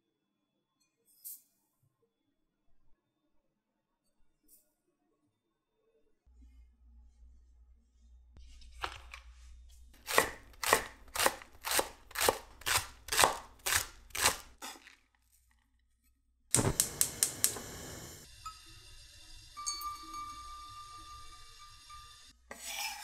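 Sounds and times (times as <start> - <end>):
knife chopping on wooden board: 10.0 - 14.9
gas stove igniter clicking: 16.5 - 18.2
gas burner lighting with hiss: 16.5 - 22.3.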